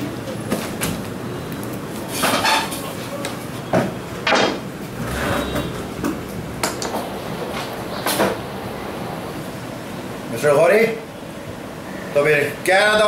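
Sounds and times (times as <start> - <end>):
background hiss: 4.9 - 12.4.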